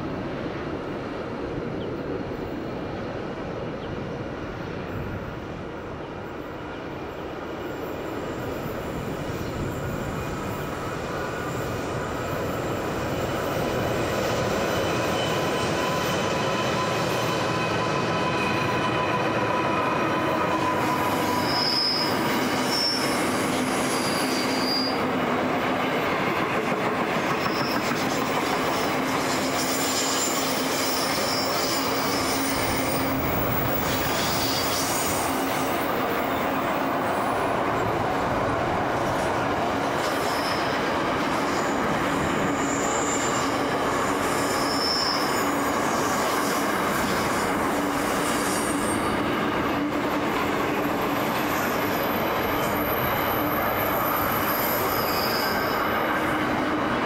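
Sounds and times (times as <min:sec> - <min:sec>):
steel wheels rumbling on rail: 0:00.0 - 0:57.0
high-pitched wheel squeals: 0:14.4 - 0:25.1, 0:27.3 - 0:36.4, 0:40.2 - 0:40.8, 0:42.4 - 0:46.3, 0:51.3 - 0:56.3.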